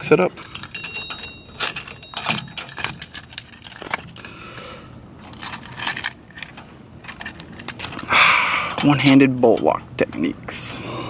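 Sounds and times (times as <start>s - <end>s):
metal locks clinking and rattling: 0.0s - 4.3s, 5.2s - 8.0s.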